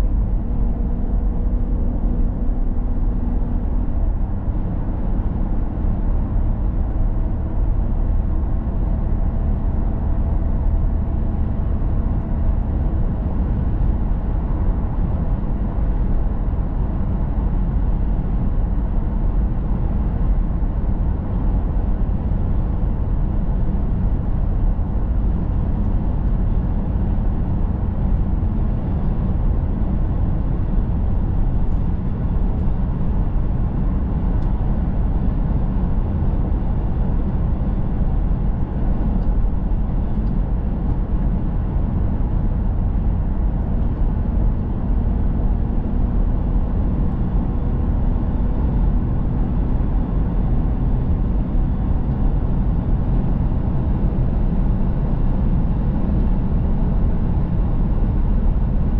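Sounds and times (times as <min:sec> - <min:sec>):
car tyres and engine rumble: 0:00.0 - 0:58.9.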